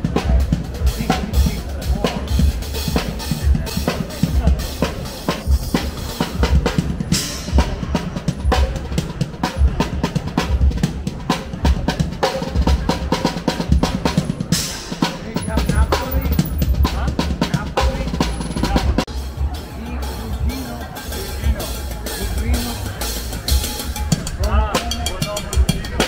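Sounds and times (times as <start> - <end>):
bass drum thumps: 0.0 - 14.5, 15.3 - 19.5
drum kit beat: 0.0 - 26.0.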